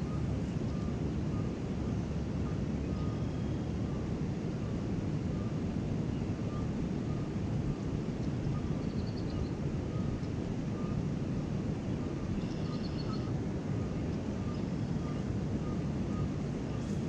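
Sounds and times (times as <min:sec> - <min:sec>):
faint bird chirps: 0:02.5 - 0:04.0, 0:08.4 - 0:11.0, 0:12.2 - 0:17.0.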